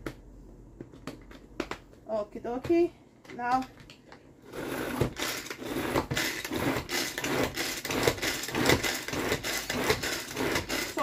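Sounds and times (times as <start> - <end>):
hand-powered food chopper whirring: 4.4 - 11.0.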